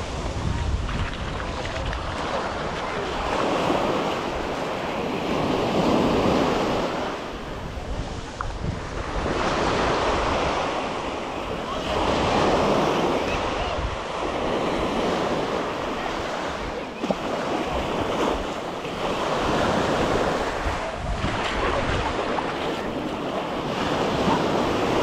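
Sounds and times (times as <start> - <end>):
ocean surf breaking on sand: 0.0 - 25.0
wind buffeting microphone: 0.0 - 25.0.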